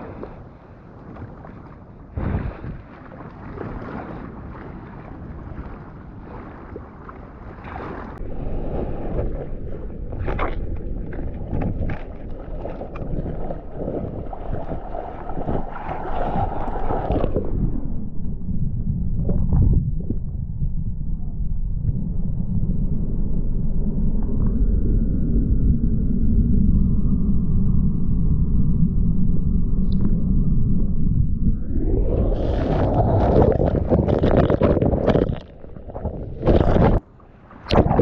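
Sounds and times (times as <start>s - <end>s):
water rushing and splashing: 0.0s - 17.6s, 32.0s - 38.0s.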